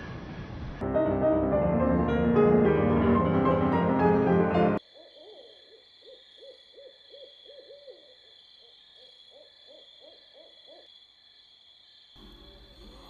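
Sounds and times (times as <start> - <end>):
crickets chirping: 4.8 - 13.0
owl hooting: 5.0 - 10.9.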